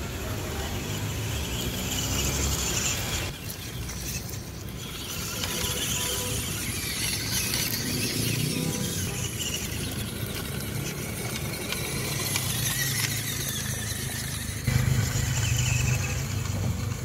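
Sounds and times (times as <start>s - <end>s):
small electric motors whining: 0.0s - 17.0s.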